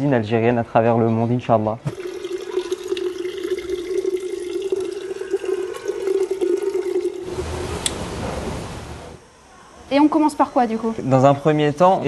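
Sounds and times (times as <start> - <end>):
water pouring into a pot: 1.9 - 7.4.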